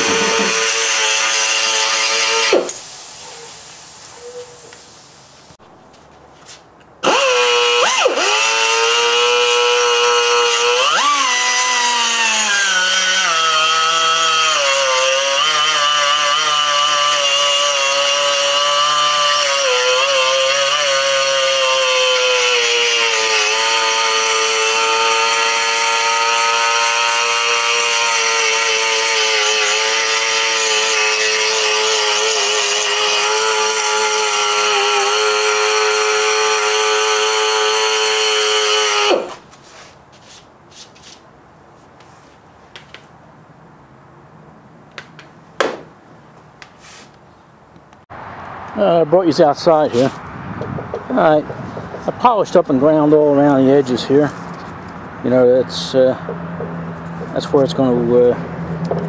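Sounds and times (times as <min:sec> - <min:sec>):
die grinder grinding metal: 0:00.0 - 0:02.8, 0:07.0 - 0:39.4.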